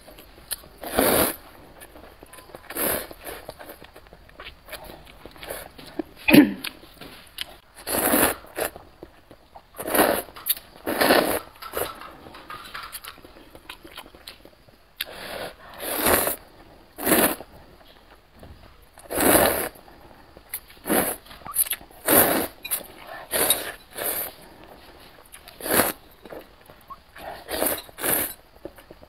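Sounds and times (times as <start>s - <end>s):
quiet chewing: 0.0s - 18.3s
slurping noodles: 0.8s - 1.5s, 7.8s - 8.8s, 9.8s - 11.9s, 15.0s - 17.5s, 19.0s - 19.8s, 20.7s - 24.5s, 25.5s - 26.0s, 27.2s - 28.4s.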